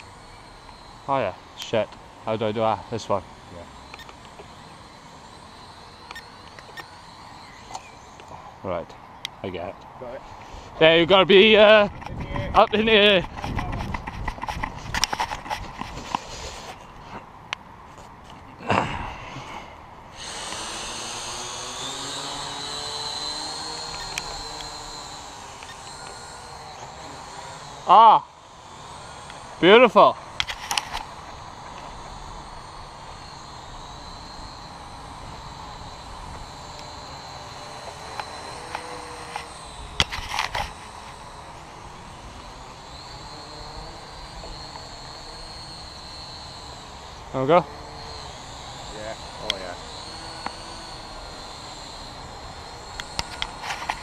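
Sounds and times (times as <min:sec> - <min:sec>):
quadcopter motors whirring: 0:00.0 - 0:54.0
loud rustle: 0:11.8 - 0:17.2.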